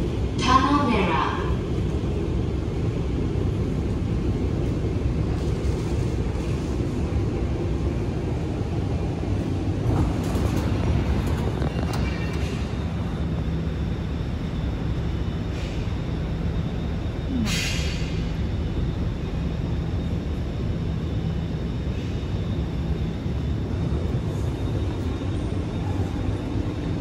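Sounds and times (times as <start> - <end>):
metro train rumbling on track: 0.0 - 27.0.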